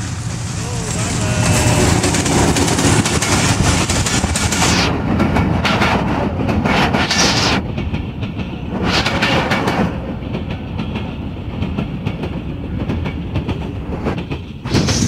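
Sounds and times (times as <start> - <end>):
rushing rumble of train: 0.0 - 15.0
train wheels clattering over rail joints: 0.0 - 15.0.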